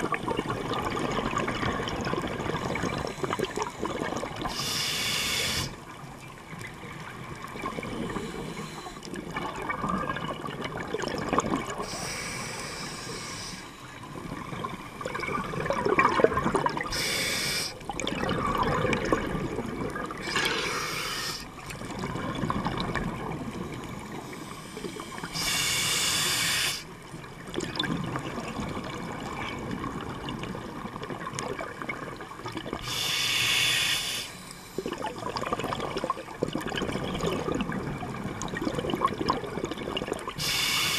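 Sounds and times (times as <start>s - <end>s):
exhaled air bubbling: 0.0s - 40.9s
regulator inhale hiss: 4.5s - 5.8s, 8.1s - 9.1s, 11.8s - 13.9s, 16.9s - 17.8s, 20.2s - 21.5s, 24.1s - 27.0s, 32.8s - 34.8s, 40.4s - 40.9s.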